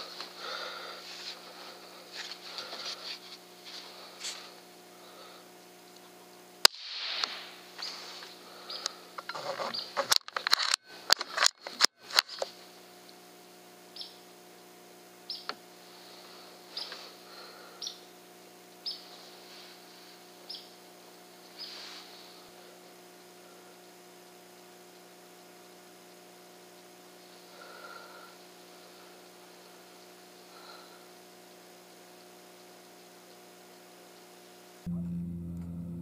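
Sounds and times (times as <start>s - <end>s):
faint electrical hum: 0.0s - 36.0s
songbird chirping: 13.9s - 14.3s, 15.3s - 15.5s, 16.7s - 18.1s, 18.7s - 19.3s, 19.9s - 22.0s.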